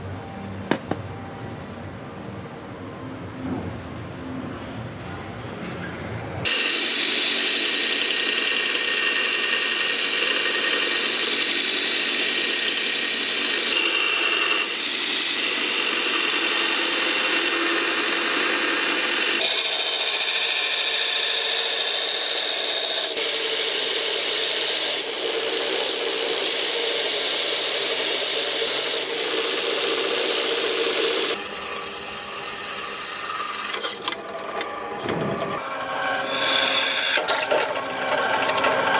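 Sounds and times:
power tool grinding steel: 0:06.5 - 0:34.2, 0:35.6 - 0:38.9.

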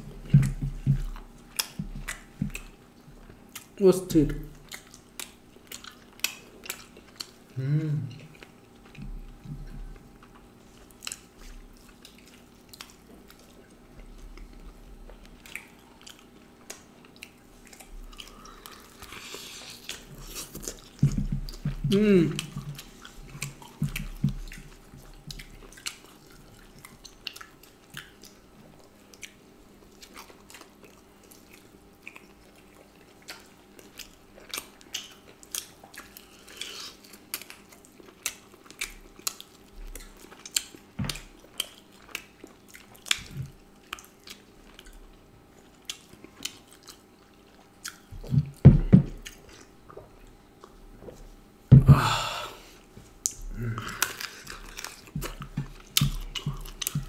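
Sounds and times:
chewing and biting food: 0:00.0 - 0:51.4, 0:52.8 - 0:57.0
wet mouth clicks and smacks: 0:01.5 - 0:02.7
low mouth sound: 0:07.5 - 0:08.3, 0:18.3 - 0:24.7.

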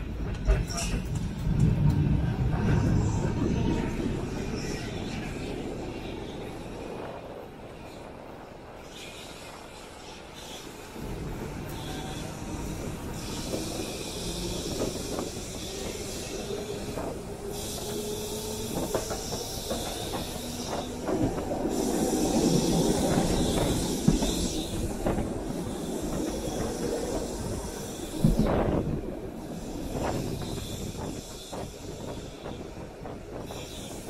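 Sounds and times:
tram wheels rumbling on rail: 0:00.0 - 0:34.0
hiss: 0:08.8 - 0:34.0.

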